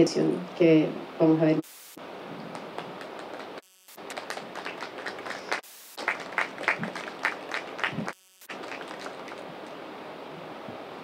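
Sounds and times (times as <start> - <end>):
audience applauding: 2.5 - 9.8.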